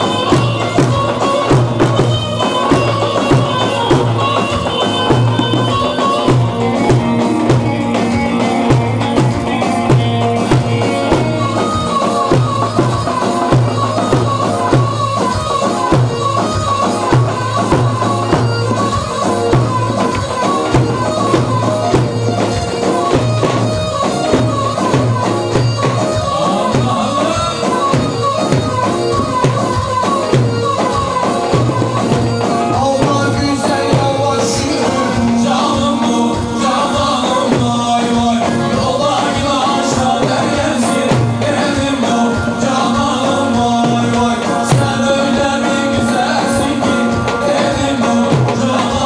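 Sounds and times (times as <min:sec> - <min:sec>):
folk dance music with driving beat: 0:00.0 - 0:49.0.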